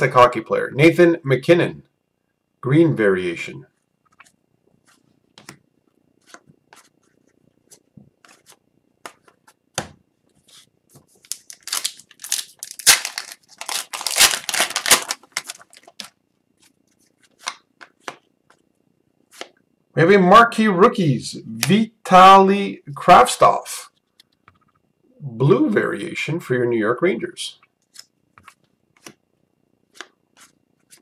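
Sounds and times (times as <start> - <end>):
wrapper tearing and crinkling: 11.2 - 16.1.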